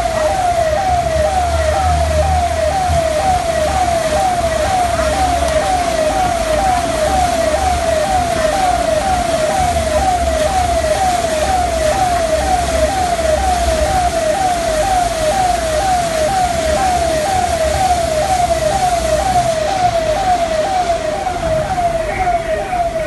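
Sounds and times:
emergency vehicle siren: 0.0s - 23.0s
traffic noise: 0.0s - 23.0s.

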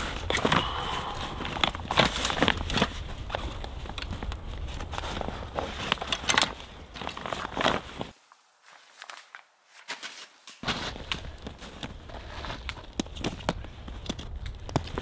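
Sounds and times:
fabric bags rustling: 0.0s - 9.2s.

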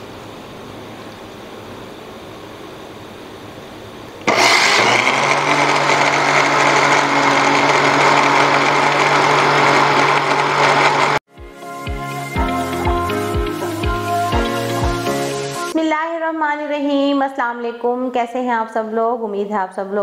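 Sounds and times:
electric blender whirring: 4.2s - 11.3s.

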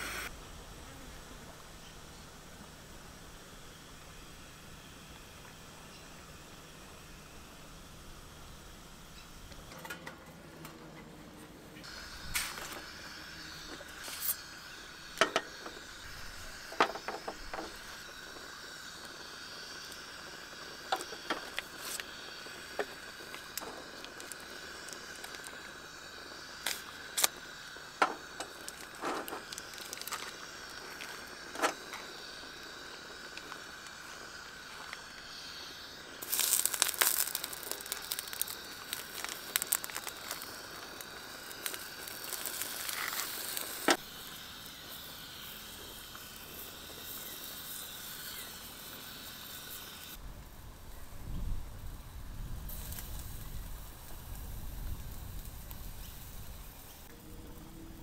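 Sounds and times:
food sizzling on hotplate: 11.8s - 50.2s, 51.7s - 58.0s
scattered clicks and crackles: 16.6s - 35.3s, 36.1s - 47.9s.

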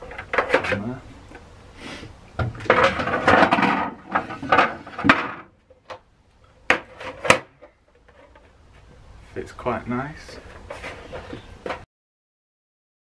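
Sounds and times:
plastic scraping and knocking on metal: 2.4s - 6.0s.

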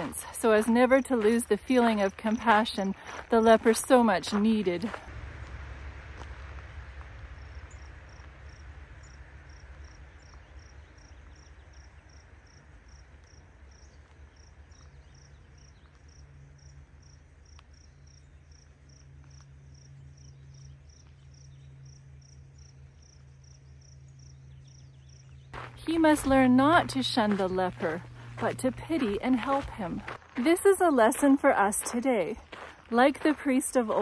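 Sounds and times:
low rumble: 4.8s - 11.7s
cricket chirping: 6.9s - 25.5s.

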